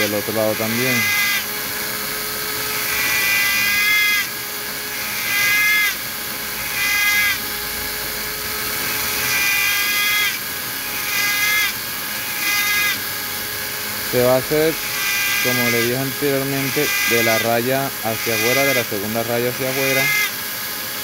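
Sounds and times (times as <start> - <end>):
mini rotary drill whining: 0.0 - 21.0.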